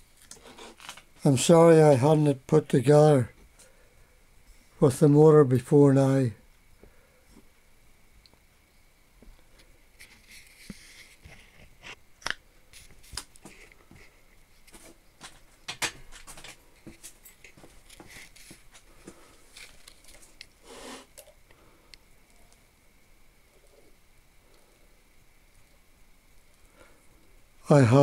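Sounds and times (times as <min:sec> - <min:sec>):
rustling scrape: 0:10.0 - 0:12.0, 0:16.2 - 0:21.1.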